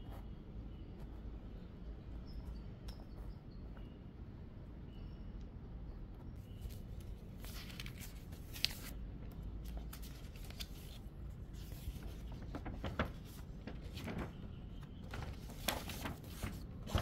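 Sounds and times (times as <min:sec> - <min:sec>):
paper rustling: 0:06.6 - 0:17.0.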